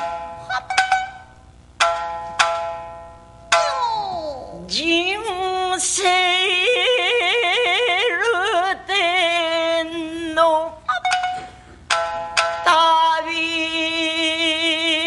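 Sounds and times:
shamisen plucks: 0:00.0 - 0:04.4, 0:10.9 - 0:13.3
woman singing with vibrato: 0:04.1 - 0:11.4, 0:12.6 - 0:15.0.

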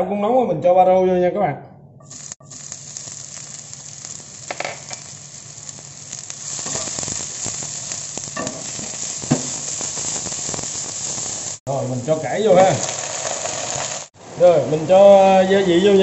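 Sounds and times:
leeks sizzling in oil: 0:02.1 - 0:15.0
spatula scraping a pan: 0:08.4 - 0:11.2.

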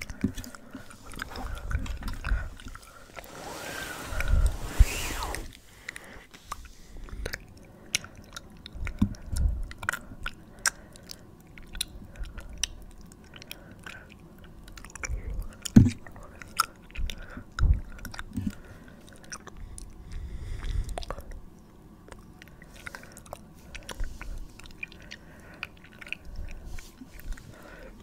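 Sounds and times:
wet mouth clicks and smacks: 0:06.5 - 0:21.4, 0:22.1 - 0:27.4.

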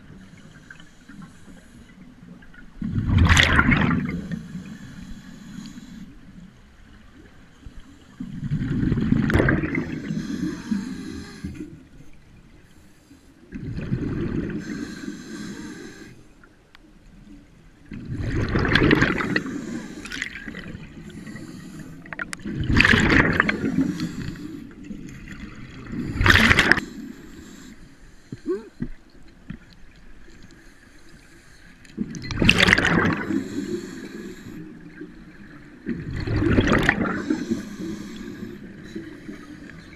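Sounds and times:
exhaled bubbles bursting: 0:02.9 - 0:04.2, 0:08.4 - 0:10.0, 0:18.0 - 0:19.4, 0:22.4 - 0:23.8, 0:32.0 - 0:33.4, 0:35.9 - 0:37.3
diver breathing through regulator: 0:04.0 - 0:06.2, 0:09.6 - 0:11.8, 0:14.5 - 0:16.3, 0:18.8 - 0:22.4, 0:23.2 - 0:24.9, 0:25.8 - 0:28.9, 0:33.0 - 0:35.0, 0:36.8 - 0:39.9.

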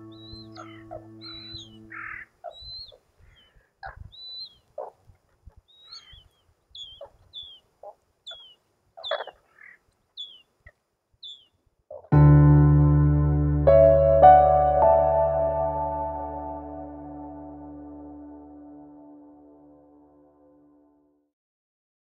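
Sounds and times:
high bird chirps: 0:00.0 - 0:04.7, 0:05.7 - 0:07.7, 0:08.3 - 0:10.5, 0:11.2 - 0:11.6
harsh bird calls: 0:00.0 - 0:04.9, 0:05.7 - 0:07.7, 0:08.3 - 0:10.5, 0:11.2 - 0:11.6.

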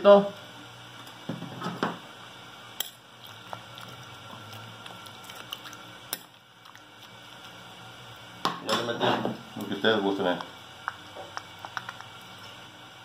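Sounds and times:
wet squishing of food: 0:03.2 - 0:07.8.

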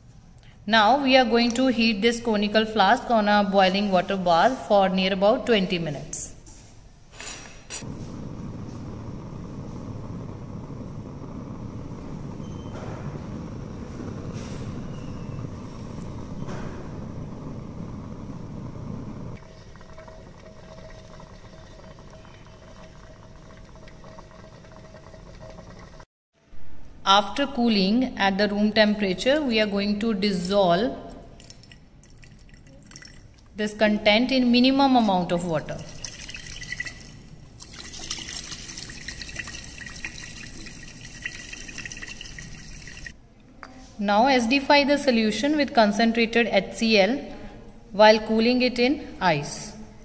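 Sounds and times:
burner flame rushing: 0:07.8 - 0:19.5
water splashing in glass flask: 0:31.4 - 0:33.5, 0:35.7 - 0:43.2.

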